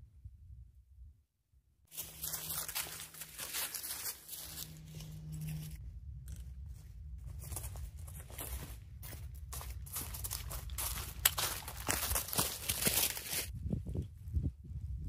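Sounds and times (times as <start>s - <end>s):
footsteps crunching dry leaves: 1.9s - 13.5s.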